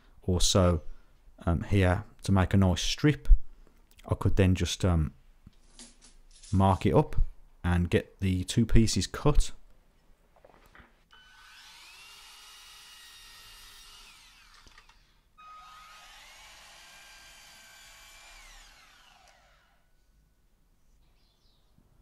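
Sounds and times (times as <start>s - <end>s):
electric mitre saw cutting wood: 11.1s - 19.9s.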